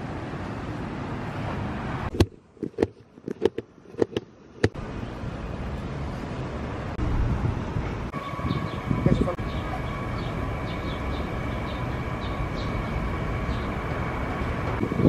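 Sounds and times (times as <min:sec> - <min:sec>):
outdoor street noise: 0:00.0 - 0:15.0
sharp irregular clicks and knocks: 0:02.1 - 0:04.8
wind on microphone: 0:07.0 - 0:09.5, 0:14.7 - 0:15.0.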